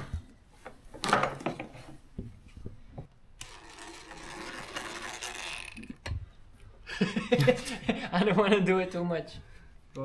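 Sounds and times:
plastic rubbing scrape: 0:03.4 - 0:06.0.

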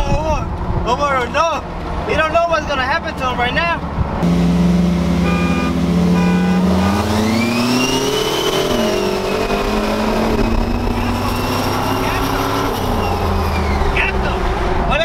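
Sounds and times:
truck engine revving: 0:00.6 - 0:15.0
short high beeps: 0:05.2 - 0:06.7.

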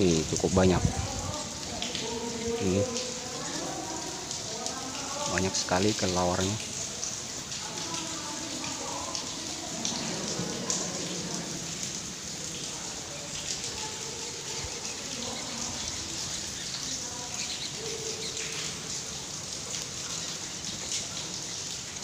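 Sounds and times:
bats squeaking and clicking: 0:13.3 - 0:18.9.

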